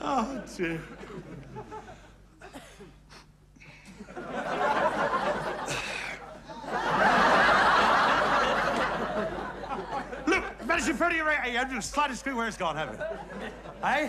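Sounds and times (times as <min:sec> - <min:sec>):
audience laughing: 0:04.0 - 0:11.2, 0:12.8 - 0:14.0.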